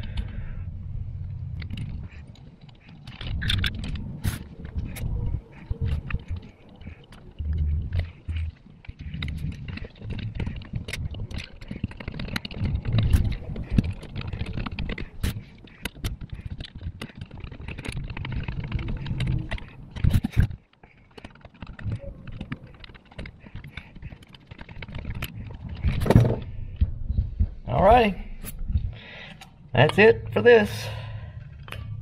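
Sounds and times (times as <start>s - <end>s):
metallic clicks and scrapes: 1.2s - 32.0s
screwdriver turning screws: 1.6s - 26.4s.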